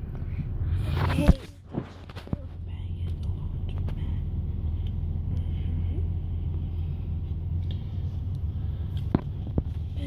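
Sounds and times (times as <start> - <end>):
car engine and road noise: 0.0 - 10.0.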